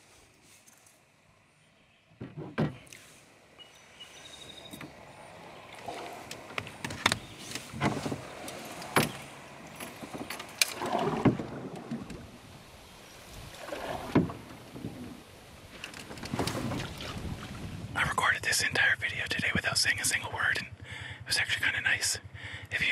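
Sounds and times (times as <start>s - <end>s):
water lapping against canoe hull: 3.9s - 18.0s.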